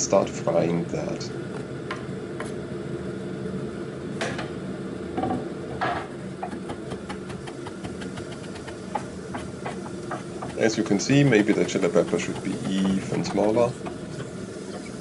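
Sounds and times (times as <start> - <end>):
low hum: 6.2 - 15.0
knife chopping on plastic board: 6.4 - 10.6.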